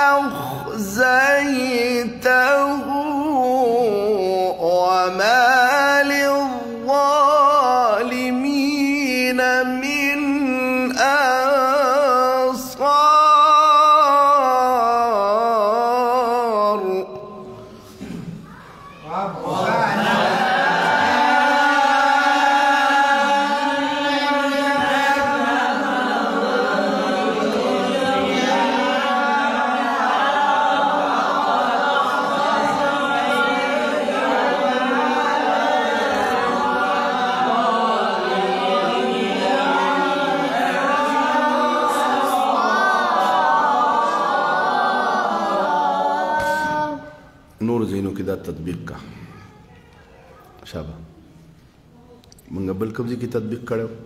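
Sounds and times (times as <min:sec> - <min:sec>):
man chanting recitation: 0:00.0 - 0:17.6, 0:47.6 - 0:49.1, 0:52.4 - 0:54.0.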